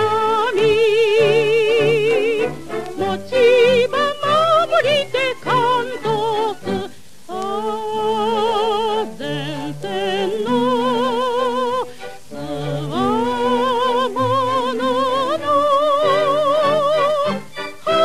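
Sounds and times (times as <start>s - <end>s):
instrumental accompaniment: 0.0s - 18.0s
singer with wide vibrato: 0.0s - 18.0s.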